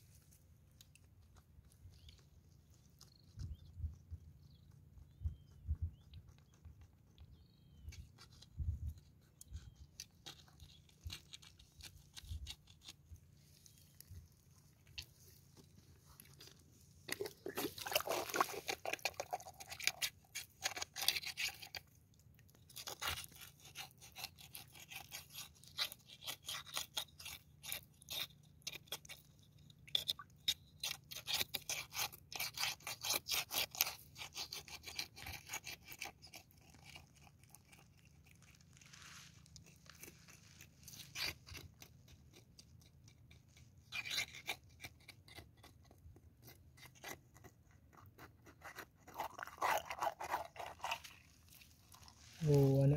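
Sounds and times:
rod scraping in wet mud: 14.7s - 21.9s, 22.6s - 42.8s, 43.4s - 45.7s, 46.4s - 52.9s.

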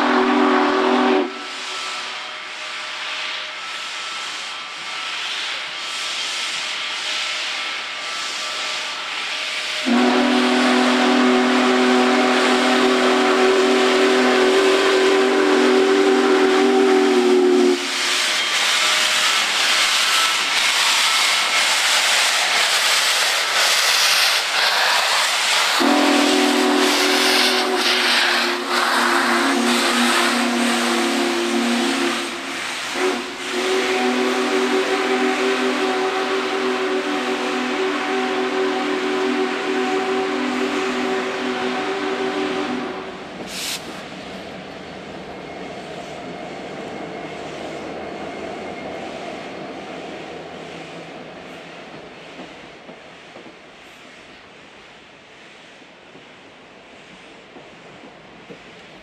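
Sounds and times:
steam locomotive whistle: 0.0s - 5.7s, 6.6s - 21.9s, 23.8s - 44.0s
steam hissing: 0.0s - 59.0s.

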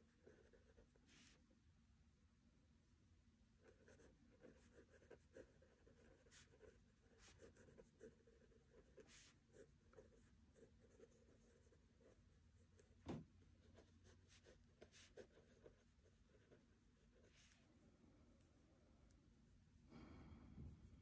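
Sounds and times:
pen scratching on paper: 0.0s - 1.3s, 3.6s - 12.9s, 13.6s - 17.6s
soft thump: 13.0s - 13.3s.

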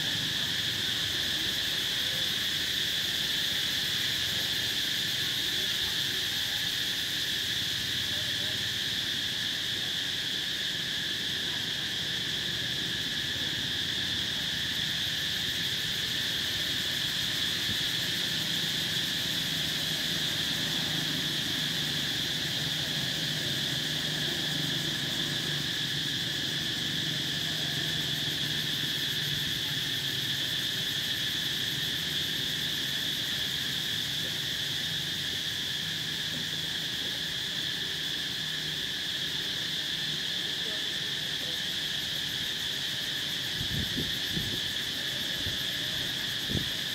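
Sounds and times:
insects droning: 0.0s - 46.9s.

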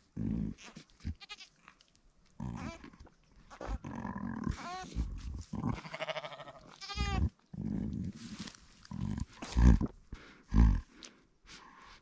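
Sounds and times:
sheep bleating: 0.6s - 1.5s, 5.7s - 7.3s.

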